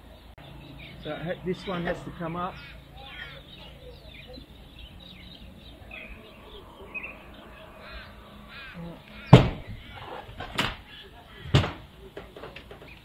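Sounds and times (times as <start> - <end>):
birds calling: 0.0 - 13.0
loud knocks on wood: 9.3 - 9.8, 11.5 - 11.8.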